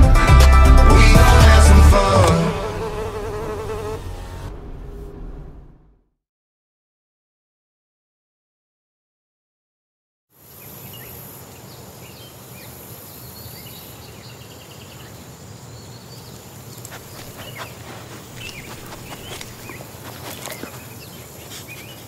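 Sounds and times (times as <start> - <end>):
low rumble: 3.9 - 6.1.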